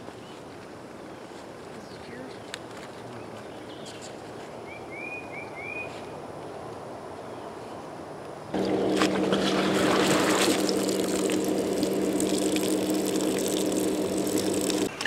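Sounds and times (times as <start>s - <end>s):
electric air pump humming: 8.6s - 14.9s.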